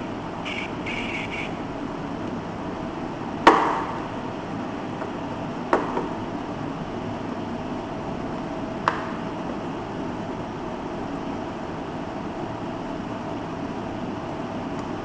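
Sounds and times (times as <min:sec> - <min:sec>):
steady hiss: 0:00.0 - 0:03.2.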